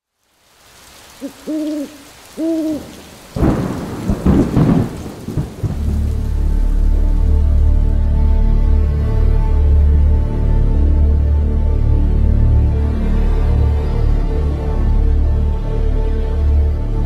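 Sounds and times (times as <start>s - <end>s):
rain: 0.0s - 17.0s
owl hooting: 1.2s - 3.0s
thunder cracking and rumbling: 2.8s - 6.5s
low music drone: 5.8s - 17.0s.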